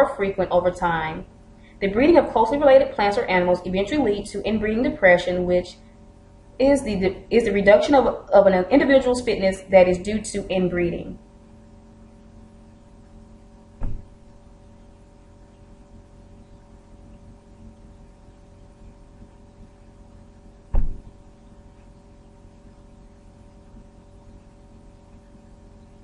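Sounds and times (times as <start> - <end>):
low electrical hum: 0.0 - 26.0
short thumps: 13.8 - 14.4, 20.7 - 21.3.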